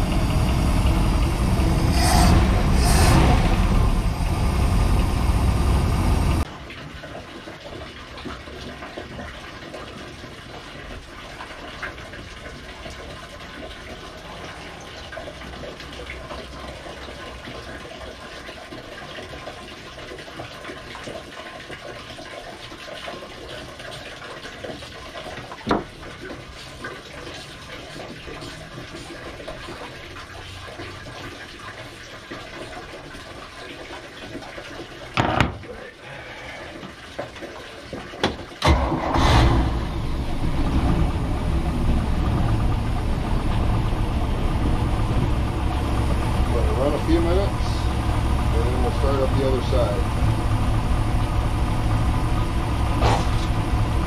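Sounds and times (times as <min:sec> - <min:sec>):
boat engine running: 0:00.0 - 0:06.4, 0:39.5 - 0:54.0
running water rushing: 0:00.0 - 0:54.0
knock: 0:35.2 - 0:35.6.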